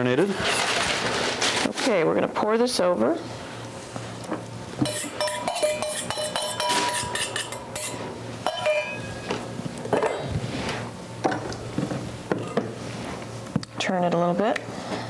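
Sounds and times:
metal bowl clinking against glass dish: 0:04.8 - 0:09.1
spatula scraping bowl: 0:04.9 - 0:09.0.

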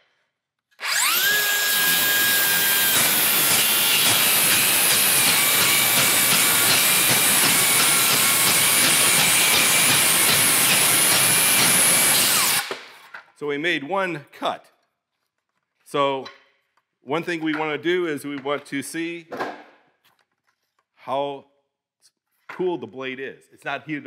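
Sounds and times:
circular saw whining: 0:00.8 - 0:12.7
saw teeth crackling on nails: 0:00.8 - 0:12.7.

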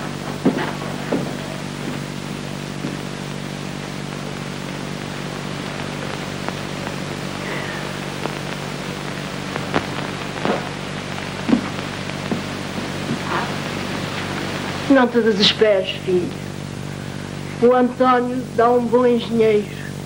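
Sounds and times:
clicks and crackles: 0:00.0 - 0:14.9
film soundtrack hiss and hum: 0:00.0 - 0:20.0.

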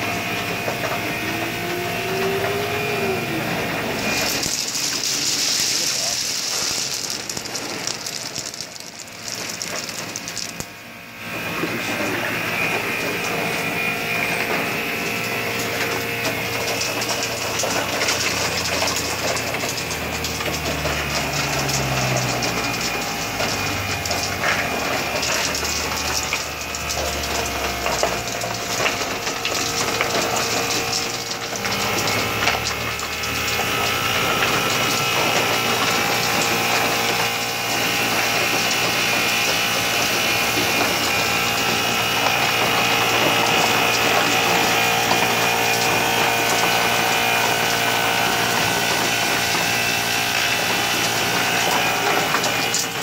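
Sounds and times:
ice machine whirring: 0:00.0 - 0:53.0
small clicks and rattles: 0:04.1 - 0:10.7.

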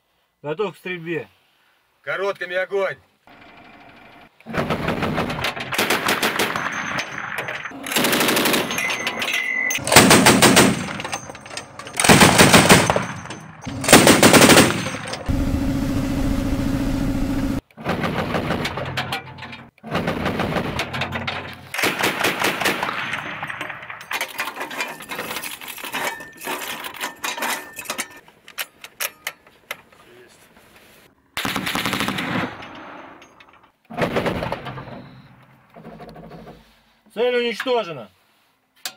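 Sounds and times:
machine gun firing bursts: 0:04.5 - 0:08.8, 0:09.8 - 0:11.2, 0:11.9 - 0:16.0, 0:21.8 - 0:23.3, 0:31.4 - 0:32.6
mechanical hum: 0:15.3 - 0:17.6.

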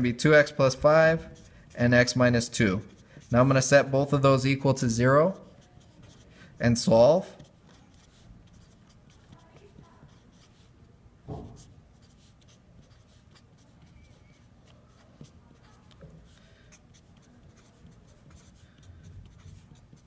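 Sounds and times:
marker writing on paper: 0:01.1 - 0:03.7, 0:05.2 - 0:20.0
soft thump: 0:11.3 - 0:11.6.

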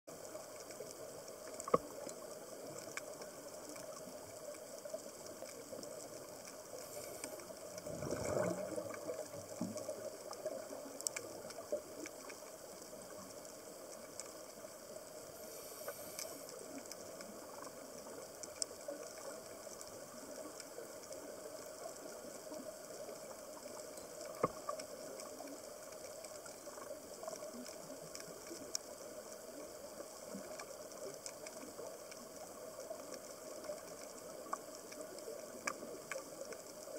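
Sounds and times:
underwater clicks and crackles: 0:00.1 - 0:36.9
underwater hiss: 0:00.3 - 0:36.9
rush of bubbles: 0:06.8 - 0:10.8.

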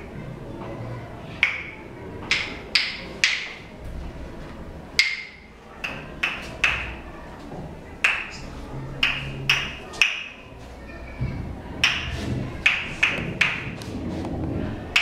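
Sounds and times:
wooden claves clacking: 0:01.4 - 0:03.7, 0:05.0 - 0:07.0, 0:08.0 - 0:10.4, 0:11.8 - 0:14.3.

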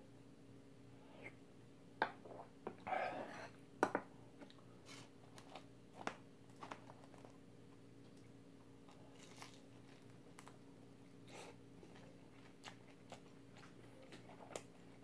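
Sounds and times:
faint steady hum: 0:00.0 - 0:15.0
person chewing: 0:11.3 - 0:15.0.

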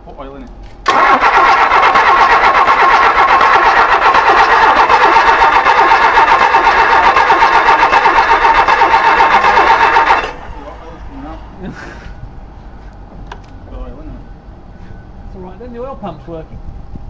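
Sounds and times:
starter motor cranking engine: 0:00.8 - 0:10.8.

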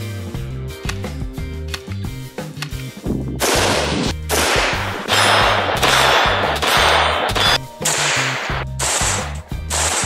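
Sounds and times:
background music with bass: 0:00.0 - 0:10.0
rifle shots: 0:03.4 - 0:10.0.

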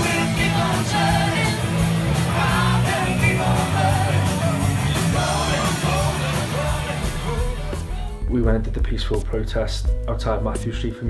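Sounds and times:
crowd singing along: 0:00.0 - 0:08.2
rock band playing: 0:00.0 - 0:10.2.

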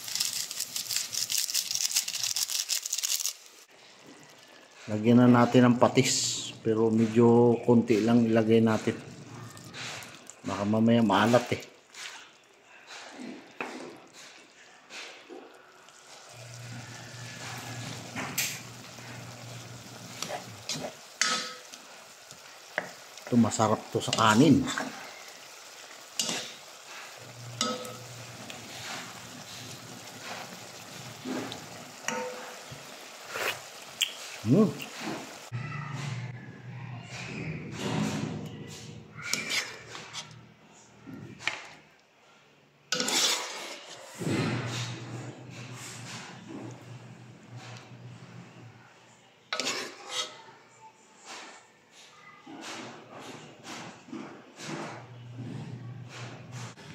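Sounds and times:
sauce simmering: 0:03.6 - 0:35.6
spatula scraping in pot: 0:11.0 - 0:36.3, 0:37.8 - 0:40.4, 0:42.9 - 0:46.9, 0:49.5 - 0:51.6.

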